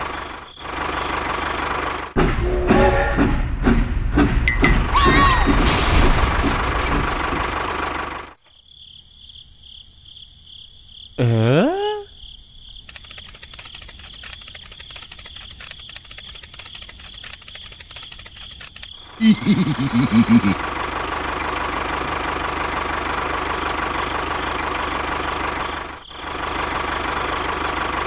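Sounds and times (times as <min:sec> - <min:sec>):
rising swoop of tones: 0:02.4 - 0:03.6
fast continuous clicking: 0:12.8 - 0:19.0
high-pitched insect-like chirring: 0:12.8 - 0:19.0
small engine knocking: 0:12.9 - 0:18.9.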